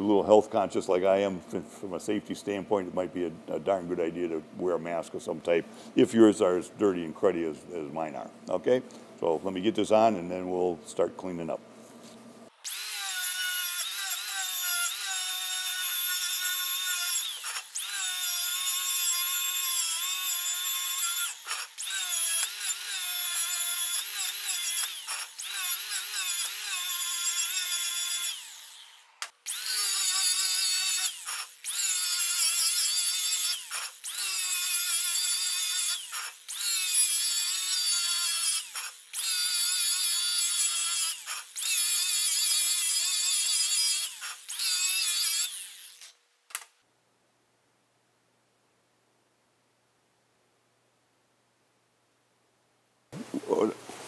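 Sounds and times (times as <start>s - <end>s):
angle grinder whining: 12.6s - 46.2s.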